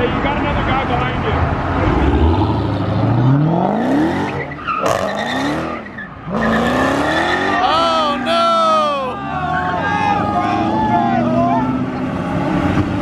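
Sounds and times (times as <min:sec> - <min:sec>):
car engine revving: 0:00.1 - 0:13.0
tire squeal: 0:03.9 - 0:07.8.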